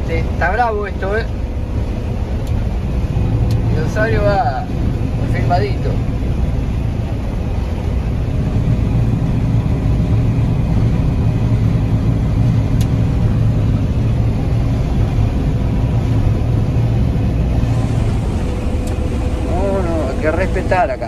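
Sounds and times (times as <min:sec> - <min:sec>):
combine harvester engine drone: 0:00.0 - 0:21.0
faint steady whine: 0:00.0 - 0:21.0.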